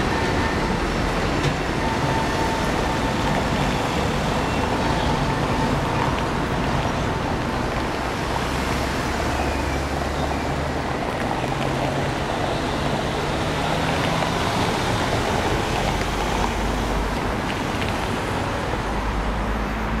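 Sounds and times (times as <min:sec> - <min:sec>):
cars driving over cobblestones: 0:00.0 - 0:20.0
tram rolling past: 0:00.0 - 0:20.0.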